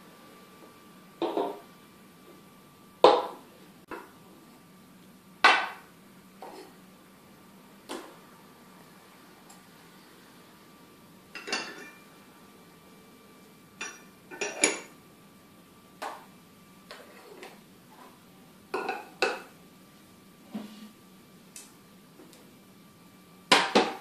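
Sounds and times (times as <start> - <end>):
porcelain teacups clinking: 11.4 - 12.0, 13.8 - 14.9.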